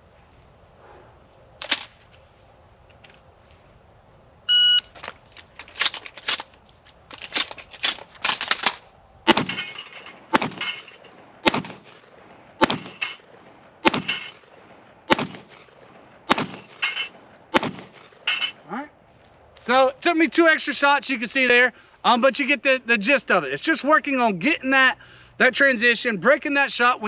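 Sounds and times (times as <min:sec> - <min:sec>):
shot timer beep: 0:04.5 - 0:04.9
shotgun shots: 0:07.9 - 0:18.3.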